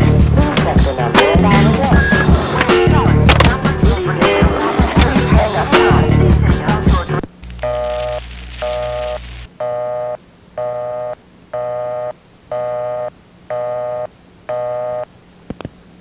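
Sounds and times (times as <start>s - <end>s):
telephone busy signal beeping: 7.6s - 15.1s.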